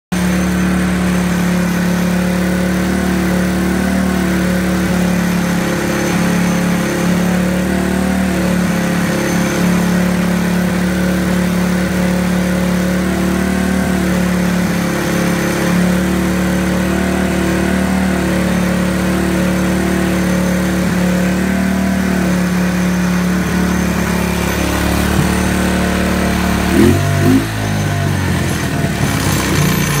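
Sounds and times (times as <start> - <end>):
atv engine idling: 0.2 - 30.0.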